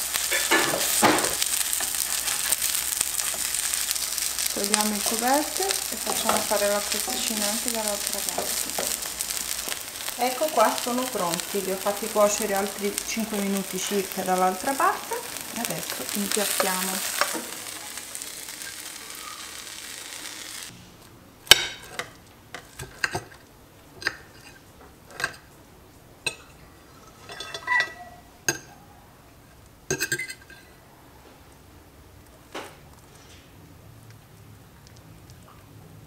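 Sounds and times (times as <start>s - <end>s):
pan sizzling: 0.0s - 20.7s.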